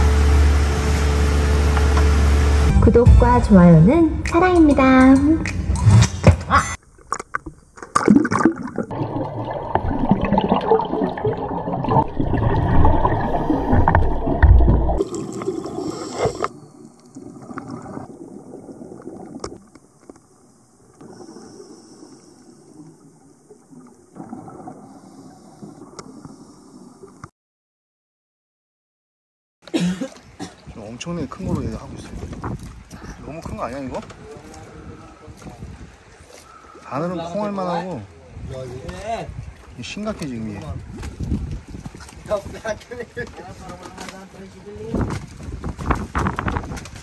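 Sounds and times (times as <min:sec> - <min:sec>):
sea water sloshing and splashing: 0:06.9 - 0:27.2, 0:30.0 - 0:37.7, 0:38.3 - 0:47.0
muffled underwater bubbles gurgling: 0:08.2 - 0:16.5.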